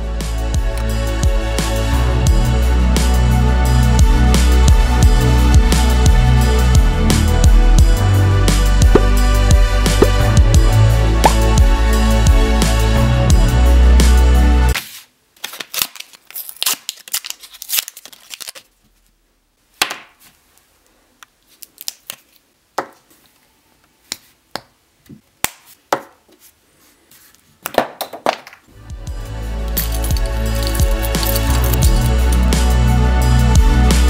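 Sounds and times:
music: 0.0s - 14.8s, 28.7s - 34.0s
crackly plastic rustling: 14.8s - 19.2s.

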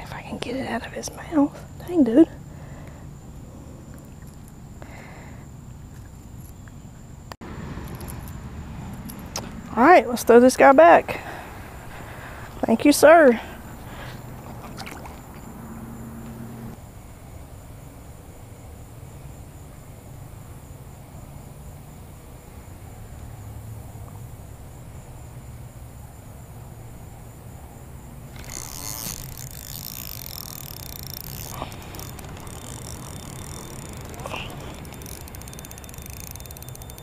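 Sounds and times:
high insect drone: 0.0s - 37.0s
close rustling and clicks of reel: 7.8s - 9.6s, 28.3s - 37.0s.

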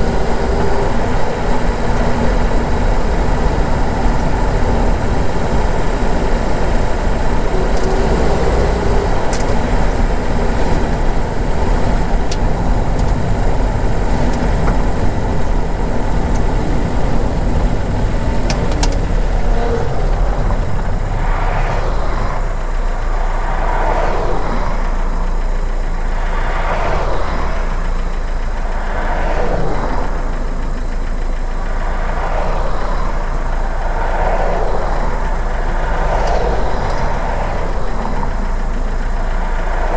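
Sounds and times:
car engine rumble from inside: 0.0s - 39.9s
rising and falling swooshes: 19.4s - 25.0s.

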